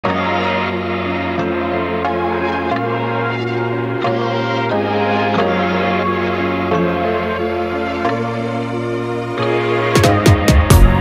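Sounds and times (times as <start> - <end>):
layered sustained chords music: 0.0 - 11.0.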